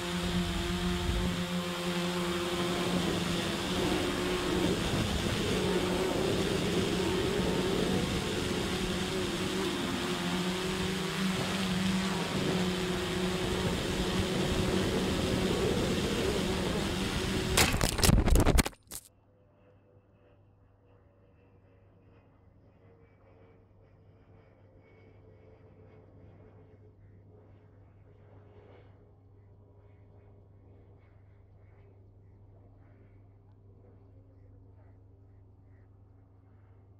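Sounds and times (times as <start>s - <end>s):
drone motors whining: 0.0s - 19.1s
wind rushing over microphone: 10.8s - 18.6s.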